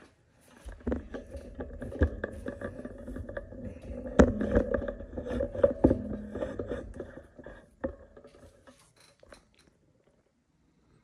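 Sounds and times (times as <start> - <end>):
steady low hum: 0.4 - 8.7.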